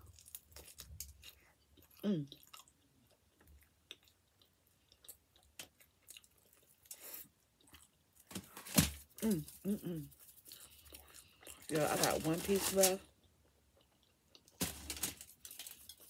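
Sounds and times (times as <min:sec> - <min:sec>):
person chewing pizza: 0:00.0 - 0:12.1, 0:13.0 - 0:14.7.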